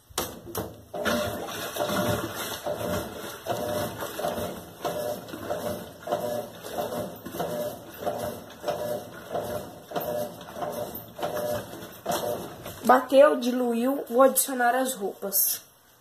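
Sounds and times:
washing machine agitating water: 0:00.0 - 0:13.7.

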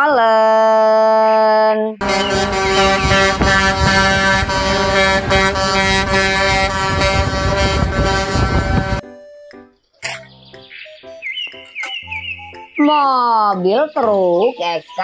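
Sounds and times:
truck air horns: 0:02.0 - 0:09.0
truck engine noise: 0:02.0 - 0:09.0.

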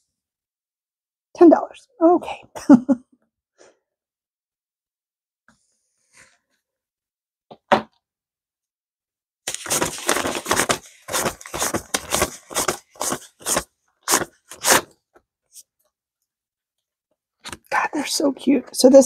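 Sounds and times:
paper bills rustling: 0:09.5 - 0:14.9.

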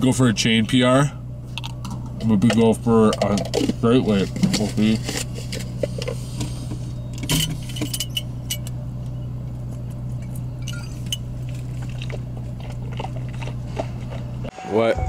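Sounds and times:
car engine idling hum: 0:00.0 - 0:14.6
glass bottle clinking: 0:10.6 - 0:11.3.

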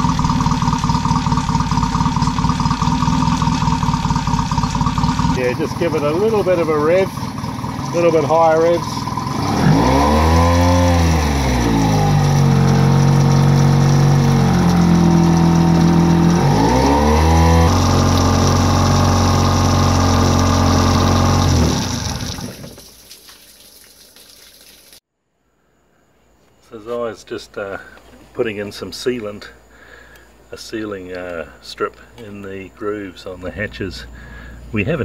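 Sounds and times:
outboard motor idling and revving: 0:00.0 - 0:22.8.

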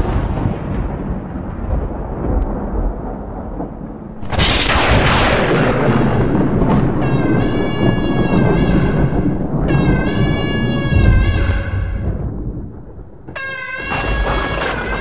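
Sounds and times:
thunder rumbling: 0:00.0 - 0:15.0
thunderclap cracking: 0:00.0 - 0:15.0
held pitched tone: 0:05.2 - 0:15.0.

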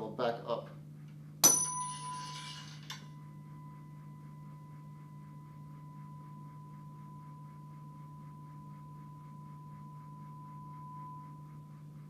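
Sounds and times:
steady low hum: 0:00.0 - 0:12.0
tuning fork ringing: 0:00.8 - 0:12.0.

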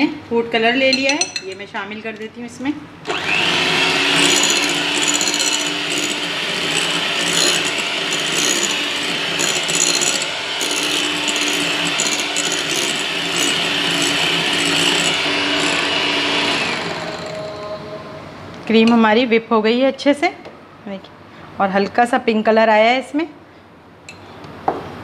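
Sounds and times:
electric hand mixer running: 0:03.0 - 0:17.9
beaters scraping glass bowl: 0:04.0 - 0:17.5.

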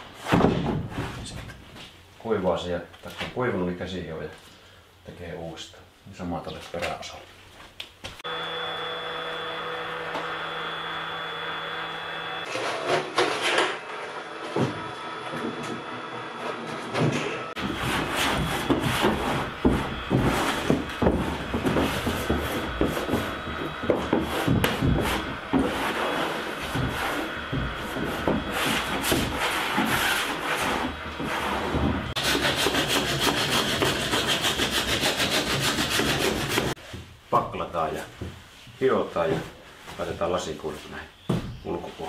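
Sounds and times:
handsaw cutting wood: 0:15.2 - 0:36.8
hand tool scraping wood: 0:16.4 - 0:37.1.

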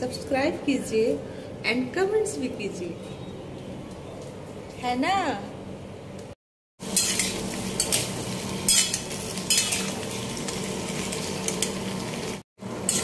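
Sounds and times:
food sizzling in hot oil: 0:06.8 - 0:13.0.

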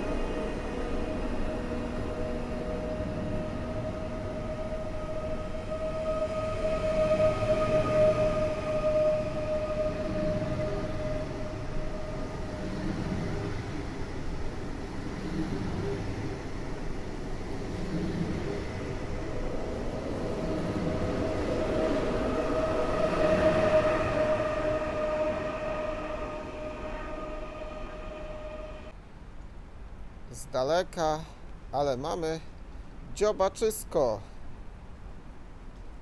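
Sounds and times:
train wheels rumbling and clattering: 0:00.0 - 0:28.9
electric train high whine: 0:00.0 - 0:29.0.

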